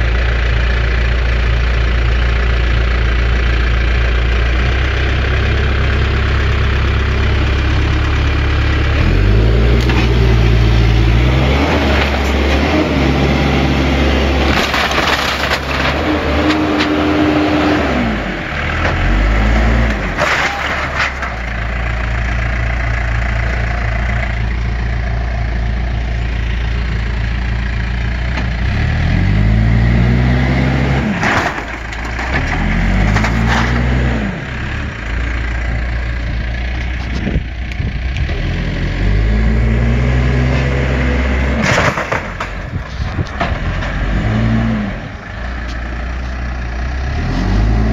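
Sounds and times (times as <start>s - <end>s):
diesel engine revving: 0.0s - 47.9s
wood cracking and crunching: 9.0s - 17.7s, 18.6s - 22.0s, 31.0s - 34.3s, 41.6s - 44.6s.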